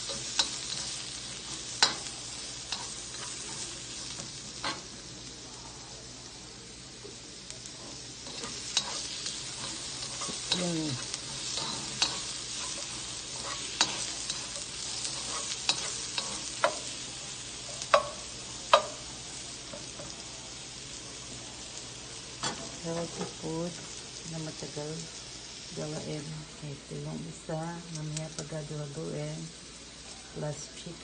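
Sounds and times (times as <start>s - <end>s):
vegetables sizzling in a wok: 0.0s - 31.0s
spatula scraping pan: 7.8s - 16.9s.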